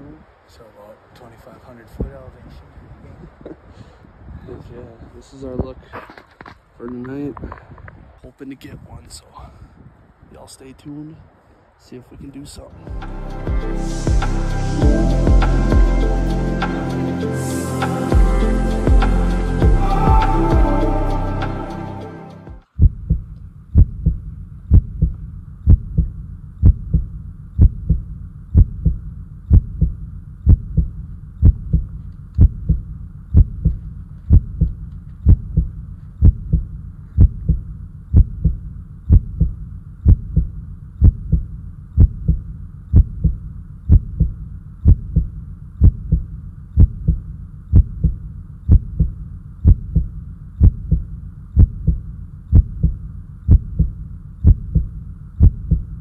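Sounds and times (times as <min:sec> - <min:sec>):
heartbeat double thump: 0:22.8 - 0:56.0.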